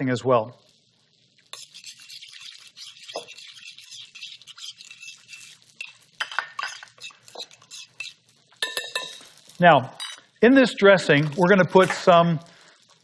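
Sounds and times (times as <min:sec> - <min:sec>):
utensil scraping glass bowl: 0:01.5 - 0:09.3.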